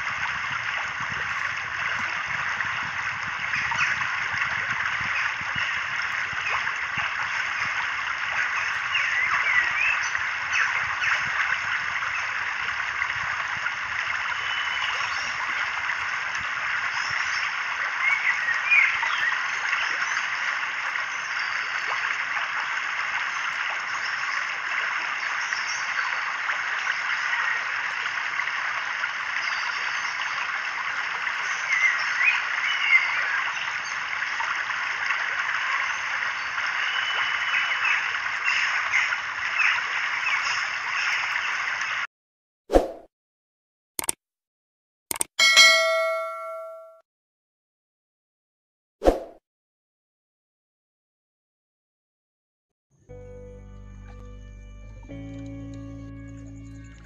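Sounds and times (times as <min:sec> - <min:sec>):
dense wetland chorus: 0:00.0 - 0:42.0
brief chime: 0:45.4 - 0:47.0.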